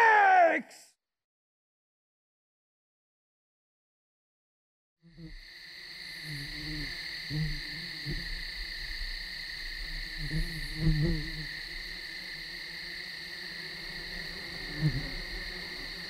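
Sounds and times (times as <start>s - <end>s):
high-pitched insect chorus: 5.1s - 16.0s.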